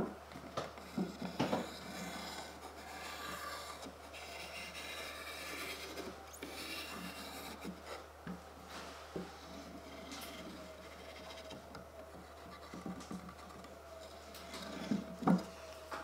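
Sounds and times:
glue nozzle scraping wood: 0.8s - 8.0s.

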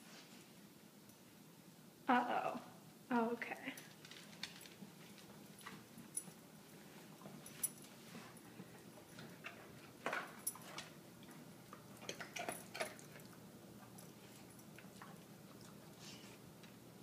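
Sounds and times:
dog toenails clicking on wood floor: 3.8s - 6.4s.

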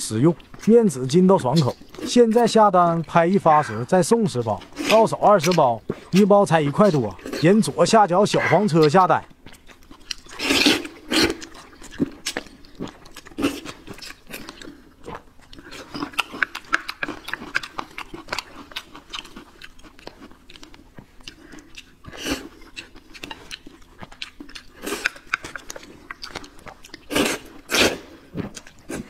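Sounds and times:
wet chewing and mouth smacks: 0.3s - 7.7s, 8.6s - 29.0s
noodles slurped: 10.1s - 12.4s.

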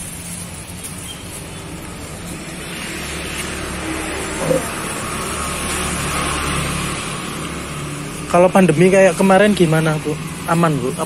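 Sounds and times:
vehicle engine hum: 0.0s - 11.0s
tyre noise: 4.2s - 5.1s.

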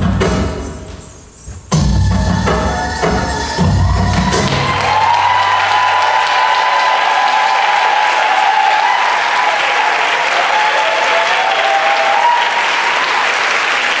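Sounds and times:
audience applauding: 4.0s - 14.0s.

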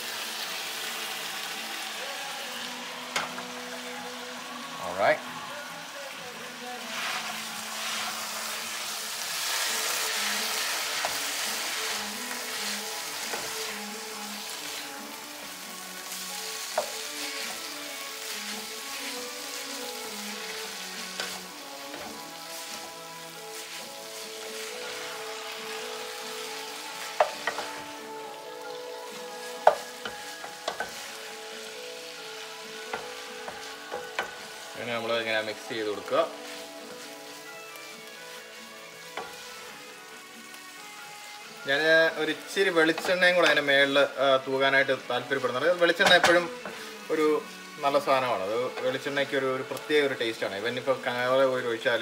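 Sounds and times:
meat sizzling in a pan: 0.0s - 52.0s
wooden spatula stirring: 16.6s - 27.8s, 29.1s - 31.3s.

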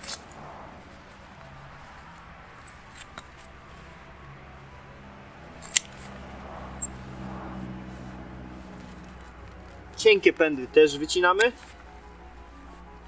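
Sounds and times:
secateurs snapping through cane: 5.6s - 6.2s.

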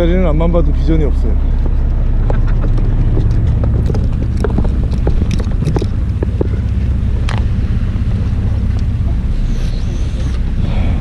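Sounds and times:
boat engine rumbling: 0.0s - 11.0s
wind on the microphone: 1.0s - 11.0s.

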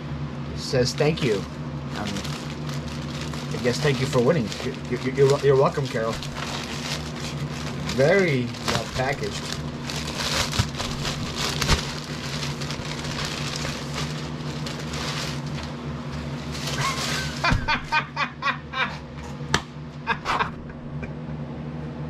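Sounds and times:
low hum: 0.0s - 22.0s
plastic and tissue paper crinkling: 1.0s - 17.9s.

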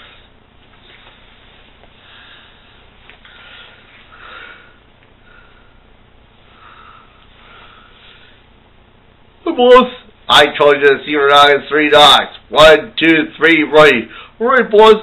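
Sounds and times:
person breathing close to microphone: 0.0s - 8.5s
faint room hiss: 0.0s - 15.0s.

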